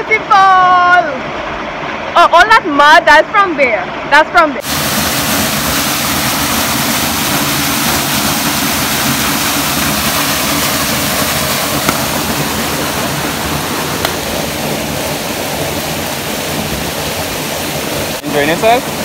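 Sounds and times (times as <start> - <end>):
waterfall splashing into pool: 4.5 - 19.0.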